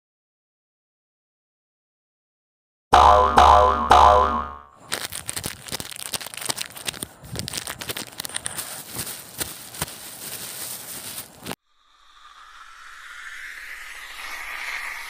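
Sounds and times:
springy boing: 2.9s - 4.7s
small irregular crackles and rustles: 4.8s - 11.6s.

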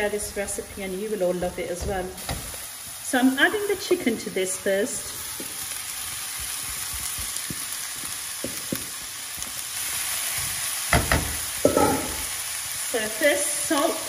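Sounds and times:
oil and onion sizzling: 0.0s - 14.0s
utensils knocking against pan: 10.9s - 12.2s.

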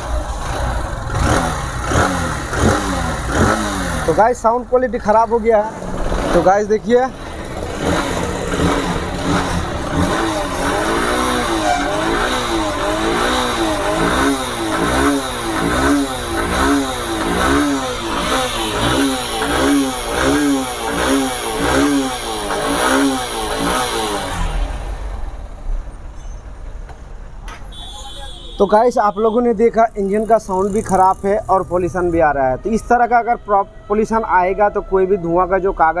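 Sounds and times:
motorcycle engine revving: 0.0s - 25.7s, 29.9s - 32.4s.

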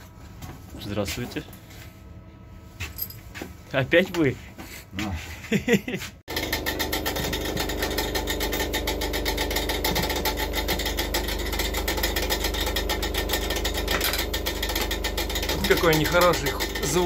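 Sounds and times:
ventilation motor rattling knock: 7.0s - 17.0s.

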